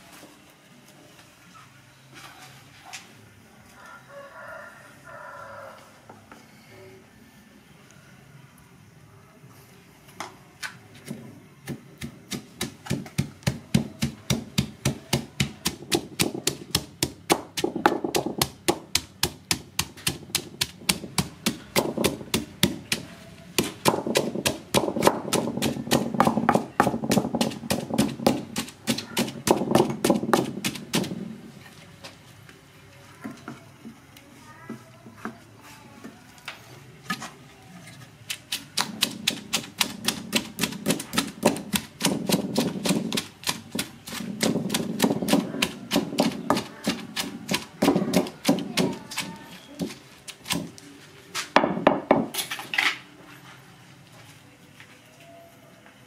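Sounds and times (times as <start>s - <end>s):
pestle pounding in stone mortar: 11.0s - 31.4s, 38.3s - 50.8s, 51.6s - 52.4s.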